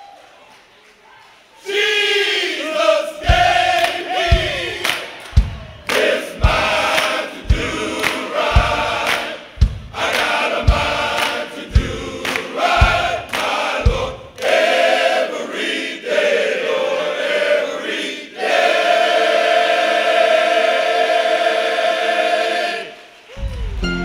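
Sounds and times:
men's choir singing in harmony: 1.6 - 23.2
low drum hits: 3.3 - 4.8, 5.4 - 11.1, 11.7 - 13.3.

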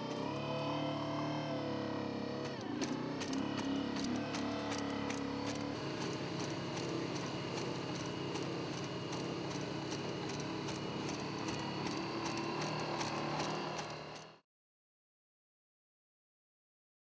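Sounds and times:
robot engine drone and whine: 0.0 - 14.4
rapid mechanical clicking: 2.4 - 14.4.

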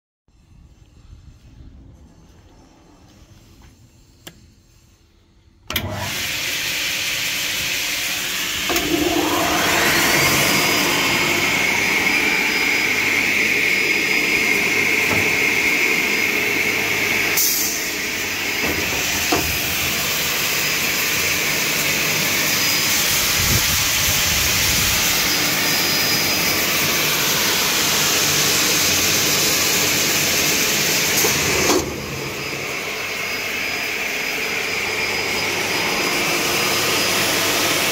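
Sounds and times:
saw motor whining: 5.7 - 37.9
rush of air: 8.8 - 16.0.

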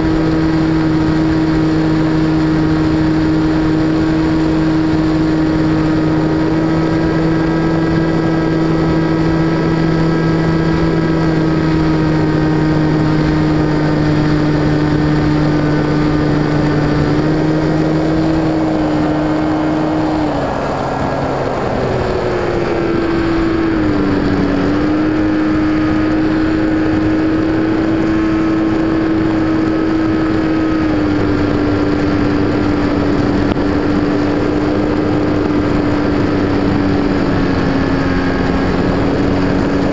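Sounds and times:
model plane motor whine: 0.0 - 39.9
rush of air: 0.0 - 39.9.

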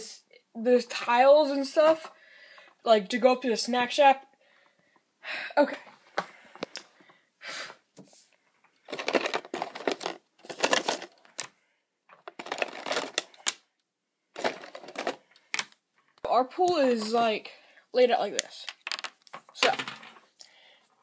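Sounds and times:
handling noise and clicking clatter: 8.7 - 11.5, 12.1 - 13.8, 14.4 - 16.3, 18.4 - 20.3.

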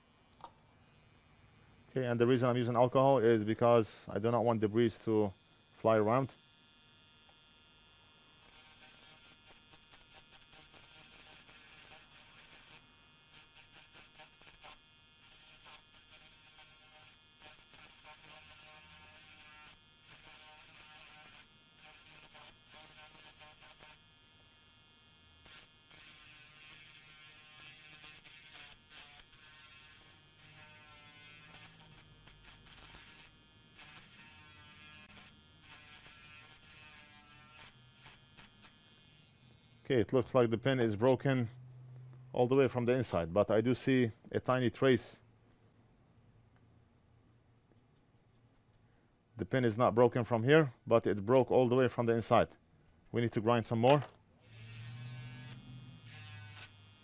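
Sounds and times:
grinding pen whirring: 0.0 - 39.9, 54.0 - 57.0.

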